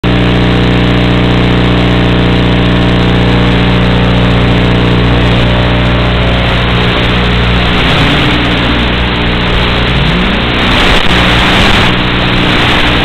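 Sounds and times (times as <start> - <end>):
model plane motor buzzing: 0.2 - 13.0.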